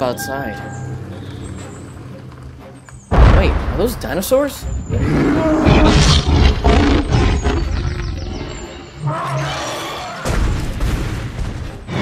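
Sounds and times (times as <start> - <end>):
dinosaur roars: 4.9 - 10.2.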